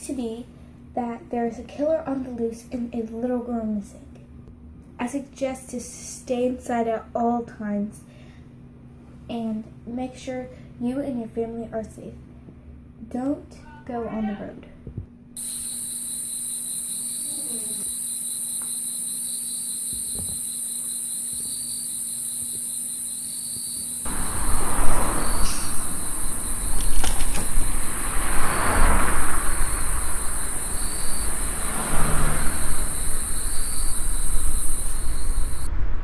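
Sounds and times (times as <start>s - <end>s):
crickets chirping: 15.4s - 35.7s
rushing noise: 24.1s - 36.0s.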